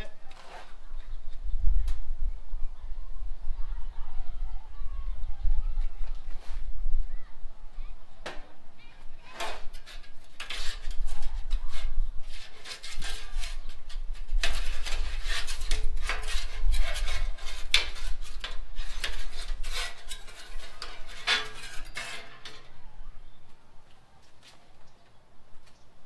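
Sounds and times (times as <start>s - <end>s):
metal spatula scraping griddle: 9.1s - 22.8s.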